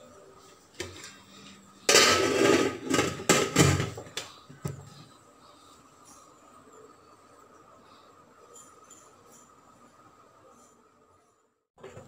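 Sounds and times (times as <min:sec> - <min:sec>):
metal lid scraping and clanking: 0:01.8 - 0:04.0.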